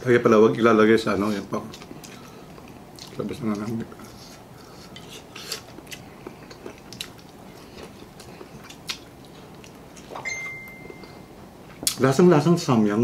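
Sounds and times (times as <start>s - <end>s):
chewing crunchy fried chicken: 1.4s - 10.2s.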